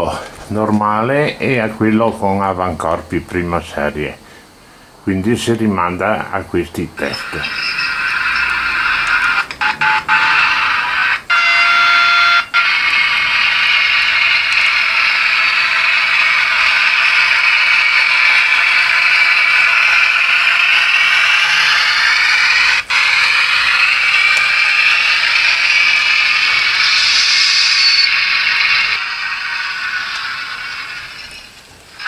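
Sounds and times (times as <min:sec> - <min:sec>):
buzzing steady tone: 0:07.0 - 0:32.0
electric locomotive running sound: 0:07.0 - 0:32.0.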